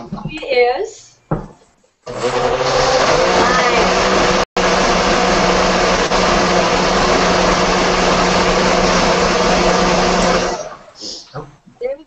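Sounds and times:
blender whirring: 0:02.0 - 0:11.0.

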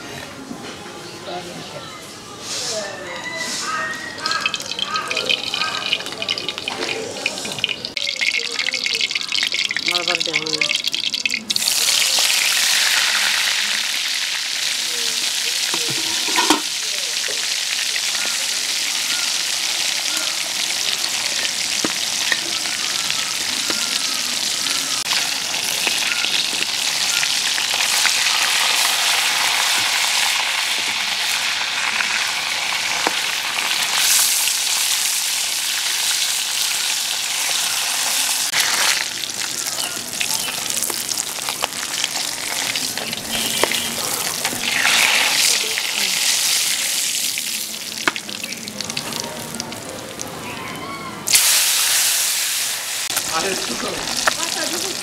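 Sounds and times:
fish sizzling in oil: 0:03.4 - 0:50.3, 0:51.2 - 0:55.0
metal spatula scraping pan: 0:15.8 - 0:16.7.

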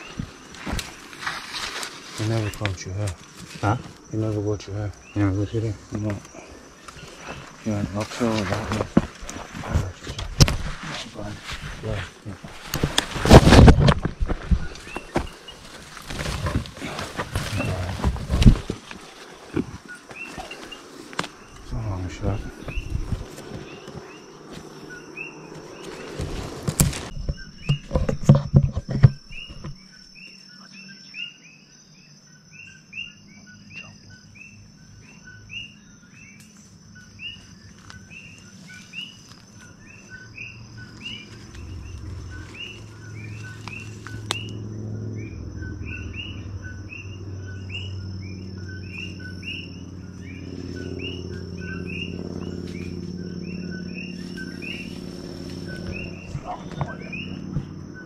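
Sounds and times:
high insect whine: 0:00.0 - 0:58.0
low hum: 0:39.2 - 0:58.0.

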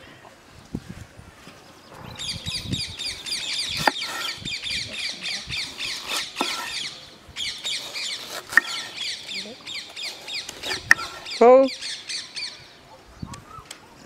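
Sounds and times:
birds chirping: 0:01.4 - 0:14.0
cleaver chopping on wooden board: 0:03.7 - 0:04.4, 0:06.0 - 0:06.8, 0:08.2 - 0:08.9, 0:10.6 - 0:11.2.

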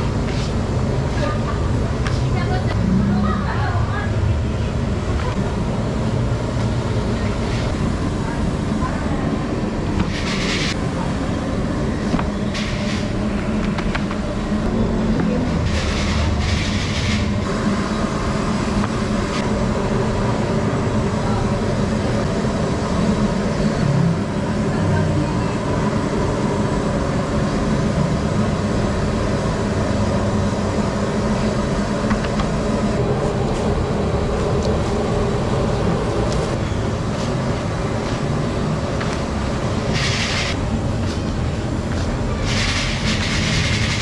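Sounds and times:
gas burner roaring: 0:00.0 - 0:44.0.

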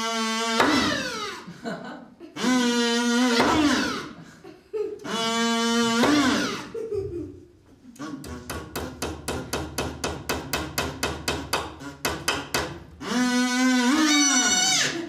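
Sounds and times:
hammer knocking on wood: 0:08.5 - 0:12.8.

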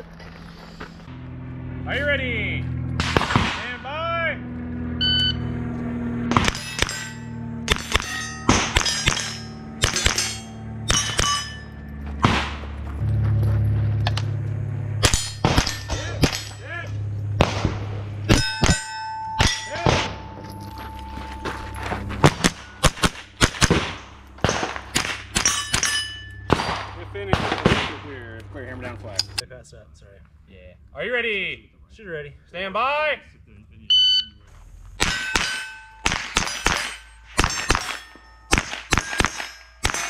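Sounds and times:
gunshots: 0:03.0 - 0:03.9, 0:06.2 - 0:11.6, 0:12.2 - 0:12.8, 0:15.0 - 0:16.7, 0:17.3 - 0:20.4, 0:22.2 - 0:28.2, 0:35.0 - 0:40.0
steel plate ringing clang: 0:06.4 - 0:12.0, 0:15.0 - 0:16.8, 0:18.3 - 0:23.4, 0:24.5 - 0:26.9, 0:35.0 - 0:40.0.

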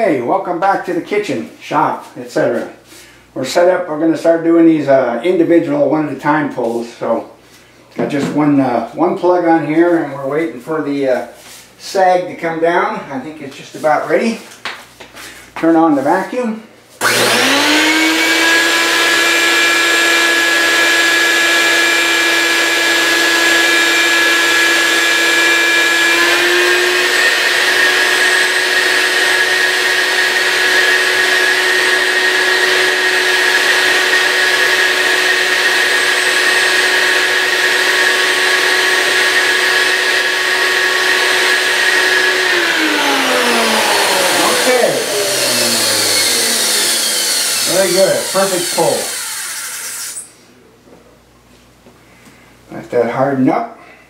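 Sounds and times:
vacuum cleaner motor whining: 0:17.0 - 0:50.3.

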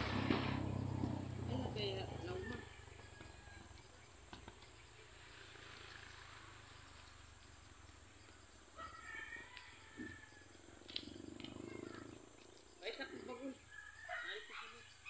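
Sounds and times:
insect hiss: 0:03.6 - 0:15.0.

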